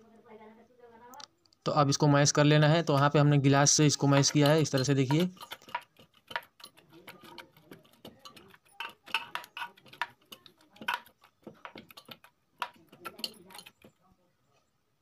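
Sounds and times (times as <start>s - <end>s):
mashing soft carrots: 2.6s - 14.7s
steel tumbler clinking on pot: 2.8s - 14.0s.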